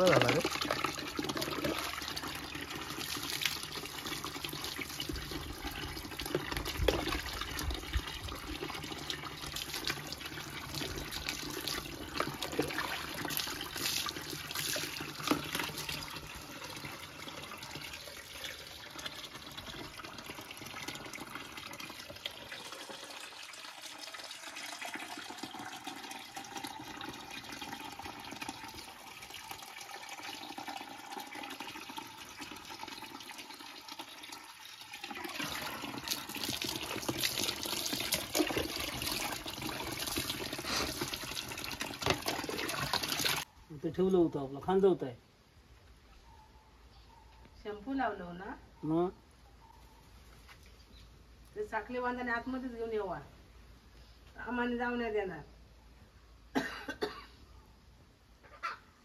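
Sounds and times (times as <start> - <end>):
water running and splashing: 0.0 - 43.5.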